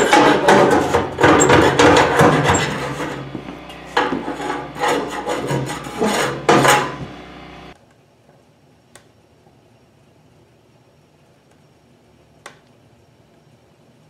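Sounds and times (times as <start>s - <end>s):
metal rod scraping metal: 0.0s - 3.3s, 3.9s - 7.1s.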